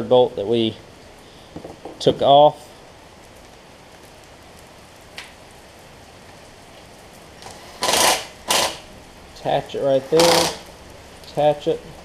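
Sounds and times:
rain hissing: 0.0s - 12.0s
impact driver bursts: 7.5s - 8.9s, 10.1s - 10.7s.

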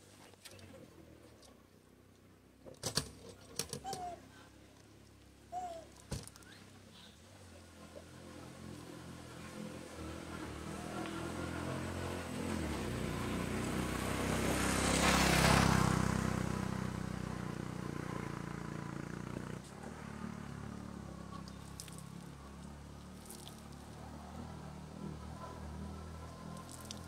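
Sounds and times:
vehicle engine passing by: 7.4s - 27.0s.

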